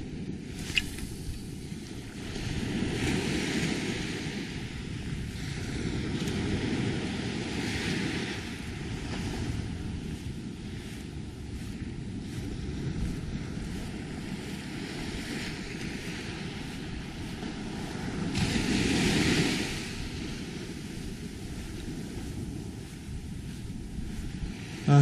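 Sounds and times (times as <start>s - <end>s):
small waves lapping on a beach: 0.0s - 25.0s
wind rumbling on microphone: 0.0s - 25.0s.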